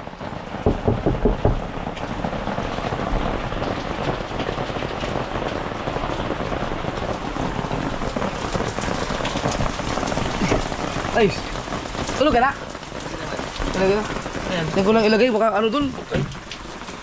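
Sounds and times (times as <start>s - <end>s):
steady rain: 0.0s - 17.0s
knocks on wooden door: 0.6s - 1.9s.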